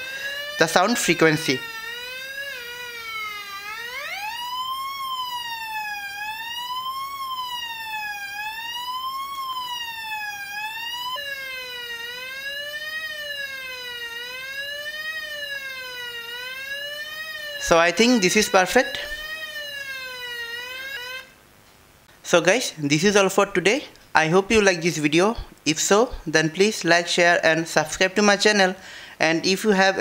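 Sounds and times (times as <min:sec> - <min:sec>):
electronic siren tone wailing: 0:00.0 - 0:21.4.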